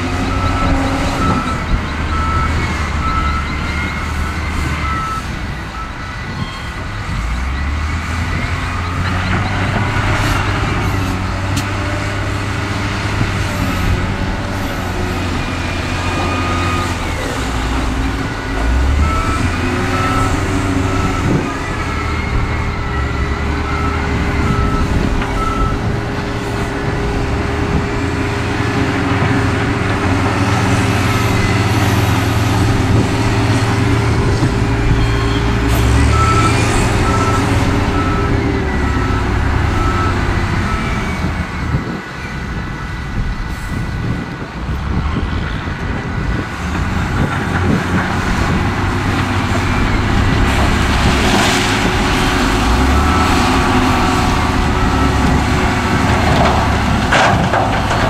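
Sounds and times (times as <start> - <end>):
reversing alarm beeping: 0.0 - 10.8, 14.6 - 26.0, 33.6 - 42.0, 51.8 - 58.0
heavy diesel engines running: 0.0 - 58.0.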